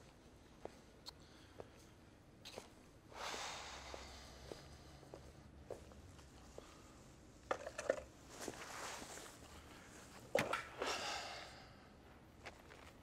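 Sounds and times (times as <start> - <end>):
clothing and bag rustling: 8.2 - 9.5.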